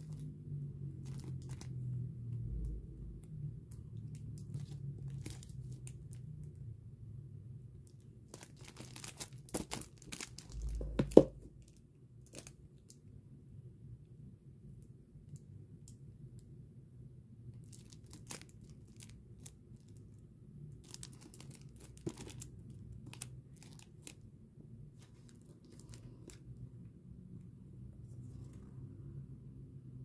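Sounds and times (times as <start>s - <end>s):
plastic wrap crinkling: 1.0s - 1.9s, 4.0s - 6.2s, 8.3s - 12.5s, 17.6s - 20.2s, 20.8s - 24.2s, 25.0s - 26.4s.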